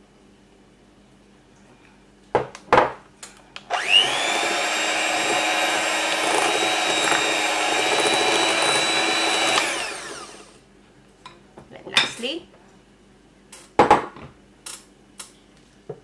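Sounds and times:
electric hand mixer whining: 3.7 - 10.6.

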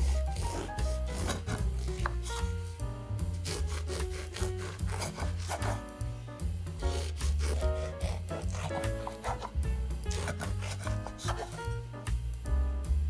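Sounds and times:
bread knife sawing through crust: 0.0 - 2.7, 3.3 - 6.0, 6.8 - 11.8
background music: 0.0 - 13.0.

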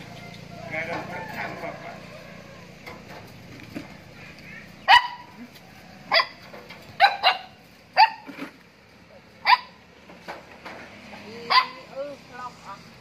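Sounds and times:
puppy yapping: 4.8 - 5.4, 7.0 - 8.3, 11.5 - 11.8.

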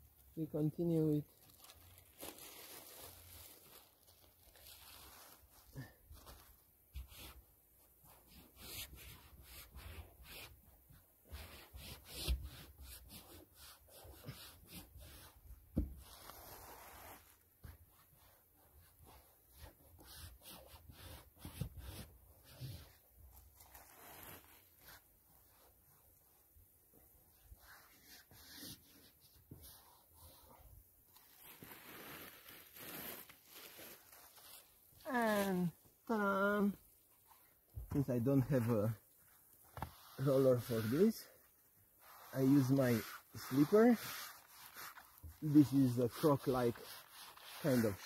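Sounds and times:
plastic film rustling and peeling: 0.7 - 7.4, 22.4 - 26.4, 30.3 - 37.4, 38.1 - 48.0
membrane rustling and crackling: 0.9 - 7.2.

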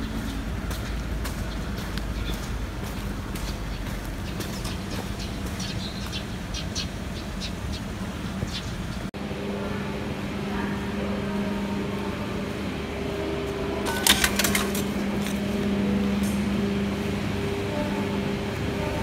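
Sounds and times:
steady low hum: 0.0 - 19.0
ticket gate clicking: 13.8 - 15.5.

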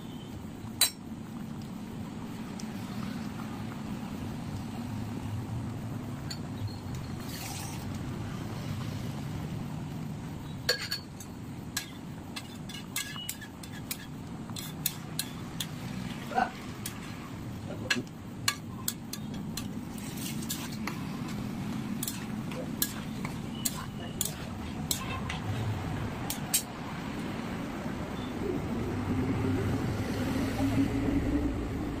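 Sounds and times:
metal spatula clinking on pan: 10.7 - 15.8, 17.9 - 19.7, 22.0 - 23.0, 23.6 - 25.2.

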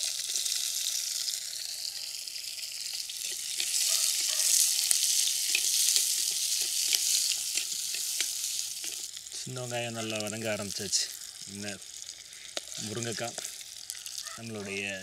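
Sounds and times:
onions sizzling in oil: 0.0 - 15.0
metal spoon scraping pot: 3.2 - 9.1.

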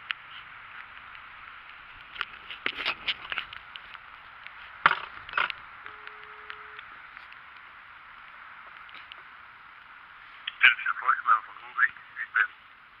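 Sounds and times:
phone ringing tone beep: 5.8 - 6.8.

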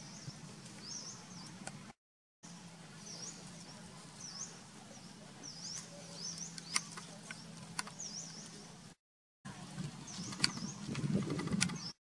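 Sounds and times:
small bird chirping: 3.0 - 8.7, 10.0 - 12.0.

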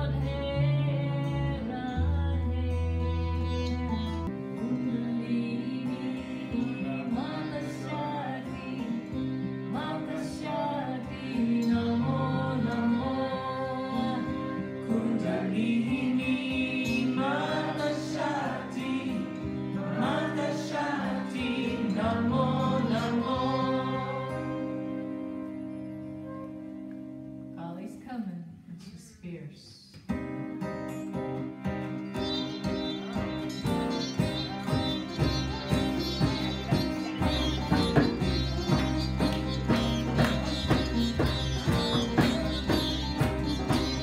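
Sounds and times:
woman singing: 0.0 - 3.8, 4.5 - 24.8
acoustic guitar: 0.0 - 29.0, 29.9 - 44.0
flute: 10.5 - 27.3, 32.0 - 44.0
harmonium drone: 32.0 - 44.0
tabla: 34.8 - 44.0.

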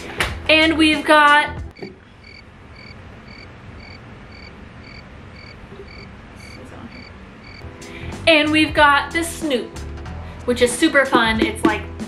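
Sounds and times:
cricket-like chirping: 1.7 - 7.6.

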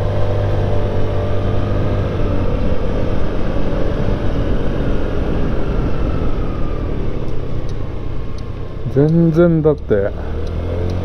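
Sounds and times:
road noise: 0.0 - 11.0
scooter engine drone: 0.0 - 11.0
wind rush: 1.1 - 8.9.

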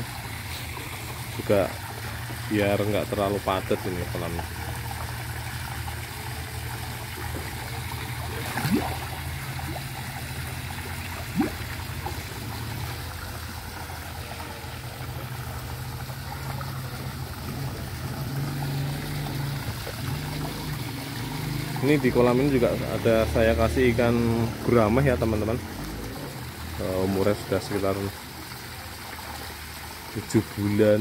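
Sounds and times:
water splashing into tank: 0.0 - 30.6.

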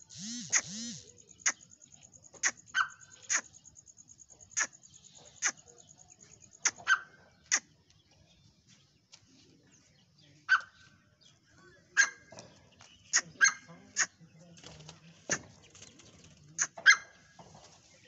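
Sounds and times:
francolin harsh call notes: 0.0 - 1.8.

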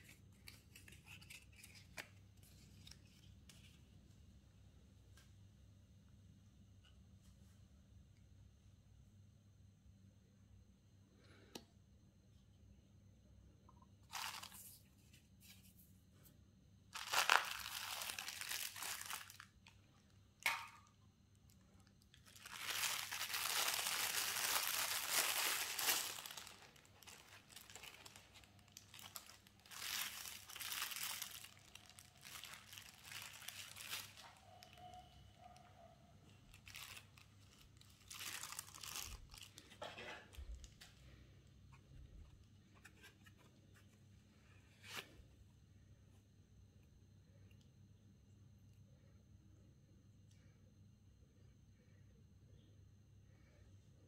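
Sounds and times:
packaging crinkling: 14.1 - 14.8, 17.0 - 20.8, 21.5 - 35.2, 36.3 - 41.0.

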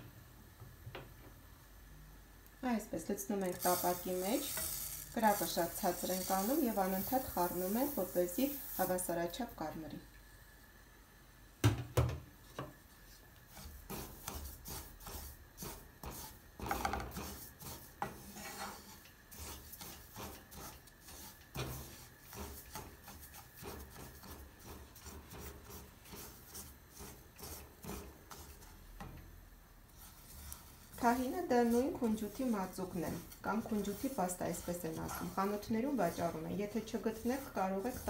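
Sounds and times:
wooden spatula scraping frying pan: 3.4 - 9.0, 13.1 - 29.2, 29.9 - 38.0.

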